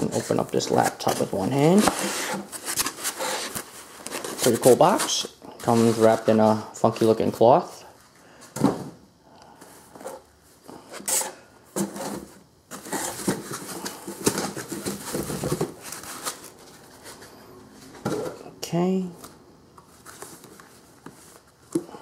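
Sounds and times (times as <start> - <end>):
items scraping in cardboard box: 0.0 - 6.6, 11.0 - 17.4
packing materials rustling: 0.0 - 7.2, 11.0 - 17.4.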